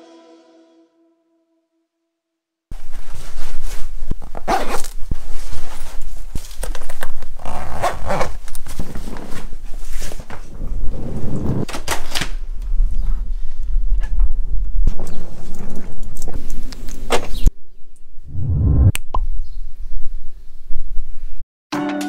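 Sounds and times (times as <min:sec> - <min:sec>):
clothing rustling: 0:02.8 - 0:10.5
low rumble: 0:18.2 - 0:19.0.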